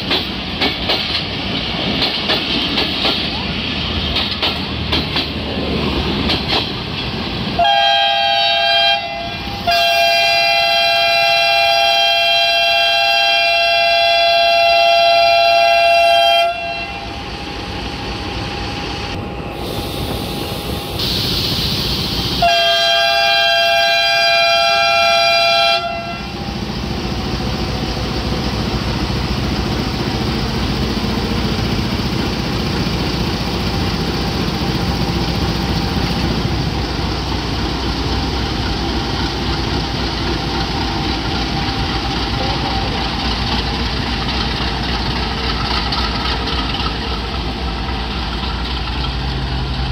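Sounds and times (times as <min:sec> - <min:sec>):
locomotive air horn blasts: 0:07.6 - 0:17.5, 0:22.4 - 0:26.4
diesel engine low rumble: 0:24.6 - 0:49.9.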